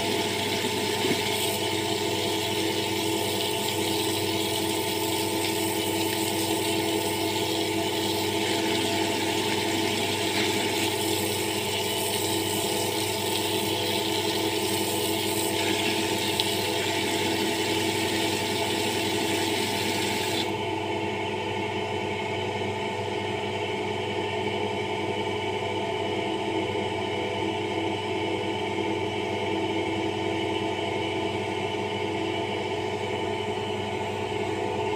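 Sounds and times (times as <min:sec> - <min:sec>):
water running from tap: 0:00.0 - 0:20.5
steady hum: 0:00.0 - 0:20.8.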